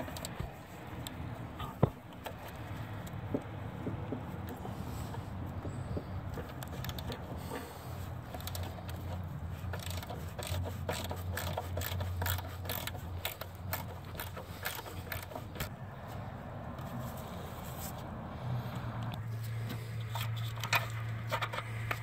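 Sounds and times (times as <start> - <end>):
ratchet wrench clicking: 6.3 - 15.7.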